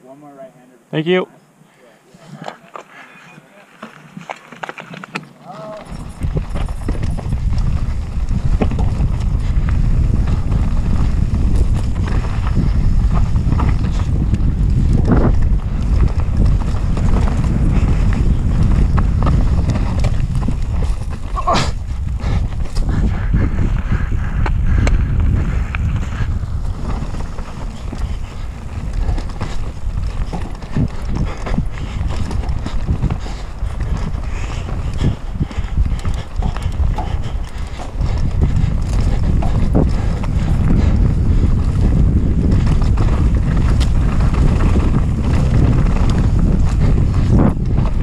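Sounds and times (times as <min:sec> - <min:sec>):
bike rattling over rough ground: 0:02.6 - 0:48.0
wind buffeting microphone: 0:05.4 - 0:48.0.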